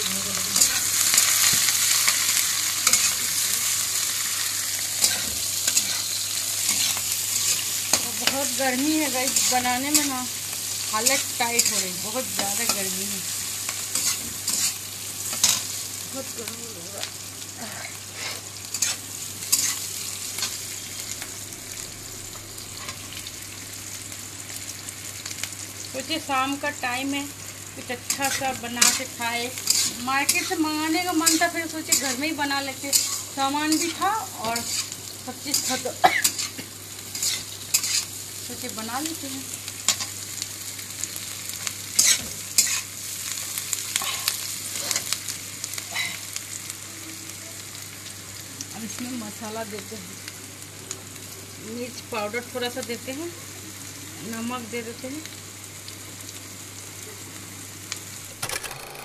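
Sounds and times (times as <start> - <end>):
vegetables sizzling in a pan: 0.0 - 59.0
metal spatula scraping a pan: 5.0 - 10.1, 13.9 - 14.8, 18.2 - 21.1, 28.1 - 32.2, 32.9 - 38.1.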